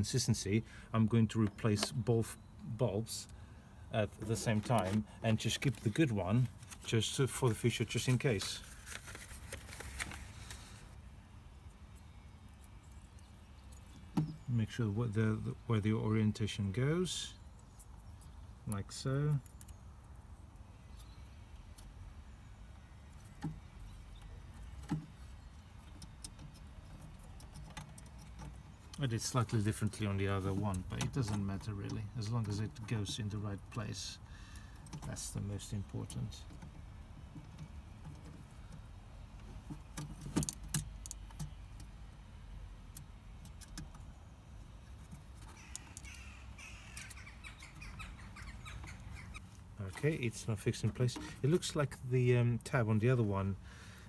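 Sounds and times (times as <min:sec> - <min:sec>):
harsh bird calls: 0:45.0 - 0:51.5.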